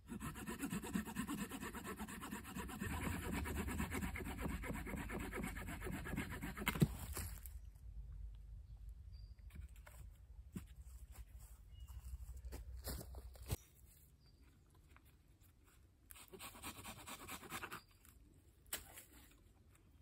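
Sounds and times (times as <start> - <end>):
hand saw cutting wood: 0.0 - 6.9.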